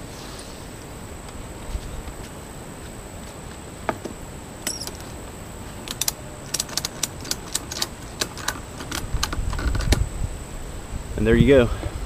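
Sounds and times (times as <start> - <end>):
strap buckle clicks and rattles: 4.6 - 5.2, 5.8 - 10.0.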